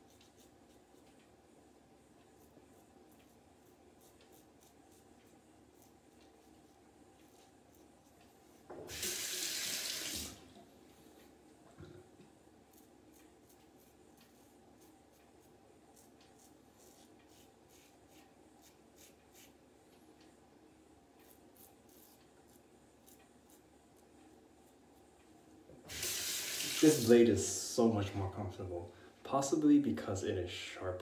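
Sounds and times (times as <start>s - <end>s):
razor scraping stubble: 12.7s - 19.6s, 21.2s - 23.7s.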